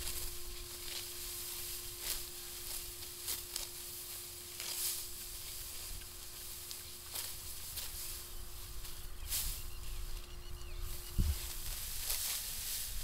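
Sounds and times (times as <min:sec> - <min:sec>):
dry wheat stalks rustling: 0:00.0 - 0:13.0
faint steady hum: 0:00.0 - 0:13.0.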